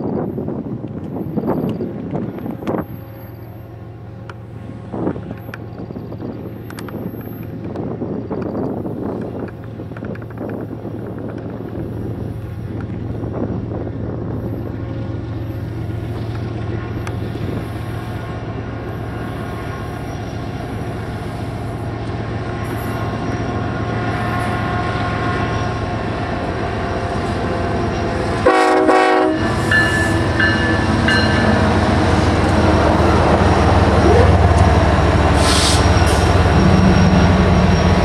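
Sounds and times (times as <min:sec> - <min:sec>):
diesel locomotive engines droning: 0:00.0 - 0:38.0
train horn blast: 0:28.4 - 0:31.7
high squeals: 0:35.4 - 0:38.0.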